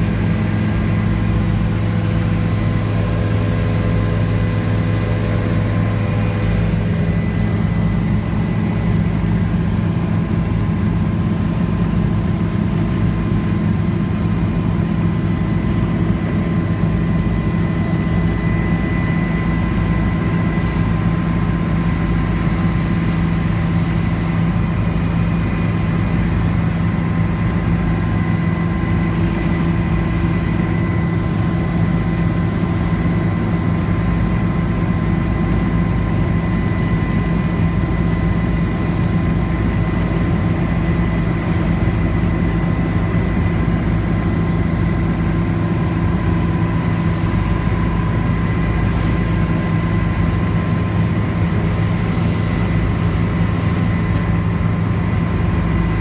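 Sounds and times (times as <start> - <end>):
helicopter engine and rotor hum: 0.0 - 56.0
thin high whine: 40.8 - 56.0.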